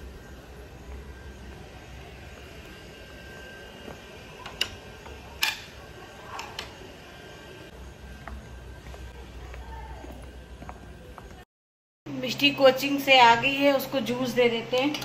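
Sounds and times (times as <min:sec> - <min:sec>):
low hum: 0:00.0 - 0:11.4.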